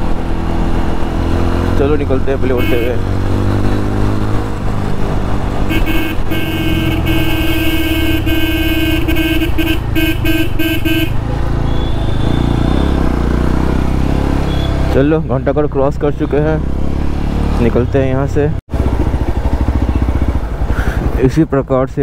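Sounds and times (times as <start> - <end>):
motorcycle engine running: 0.0 - 14.8, 18.7 - 21.3
vehicle horn honking: 2.5 - 3.0, 5.7 - 13.0.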